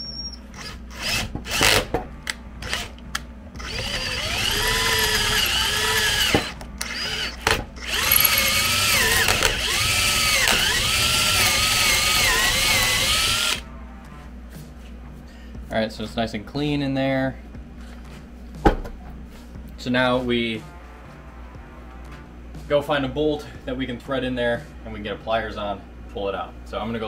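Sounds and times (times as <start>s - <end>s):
power drill boring into wood: 0.6s - 1.9s, 3.6s - 13.6s.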